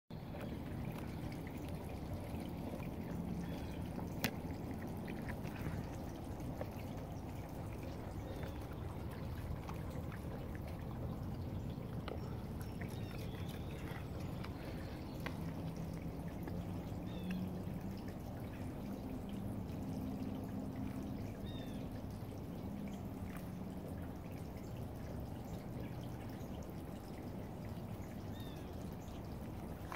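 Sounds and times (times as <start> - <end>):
low background rumble: 0.1 - 29.9
deer chewing and crunching apple: 0.3 - 16.8.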